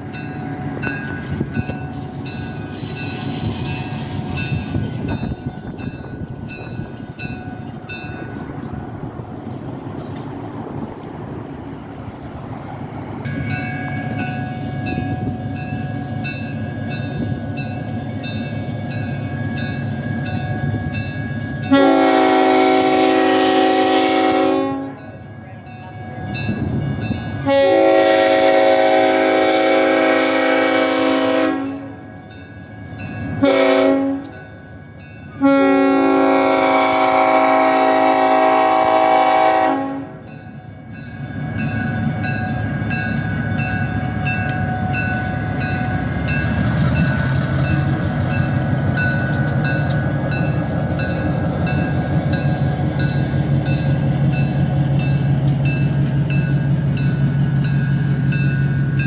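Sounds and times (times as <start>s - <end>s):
railroad crossing bell ringing: 0.0s - 8.8s, 13.1s - 59.0s
locomotive horn blast: 21.6s - 25.1s, 27.4s - 32.0s, 33.3s - 34.4s, 35.4s - 40.2s.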